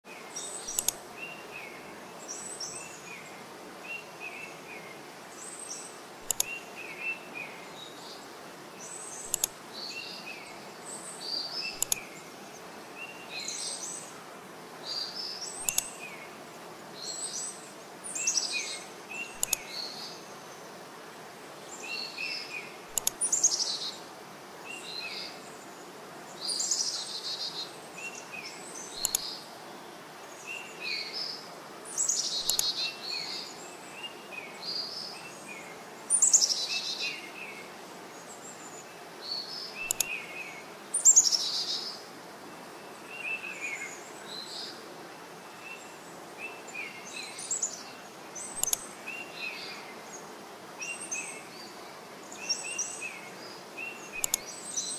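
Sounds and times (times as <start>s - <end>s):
small birds chirping: 0.0s - 54.9s
steady hiss: 0.1s - 54.9s
sharp clicks: 0.7s - 1.0s, 6.2s - 6.5s, 9.3s - 9.6s, 11.8s - 12.0s, 15.6s - 15.9s, 19.4s - 19.7s, 22.9s - 23.2s, 29.0s - 29.3s, 32.4s - 32.7s, 39.9s - 40.2s, 48.6s - 48.8s, 54.2s - 54.5s.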